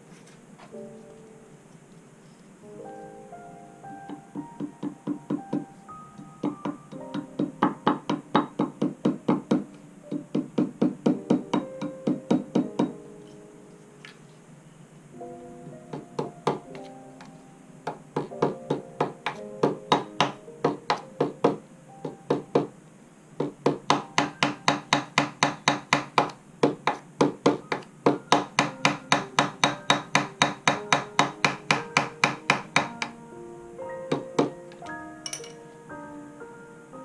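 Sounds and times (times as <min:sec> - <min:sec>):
hammer tapping on metal rod: 0:06.4 - 0:13.0, 0:23.4 - 0:33.1, 0:34.1 - 0:35.6.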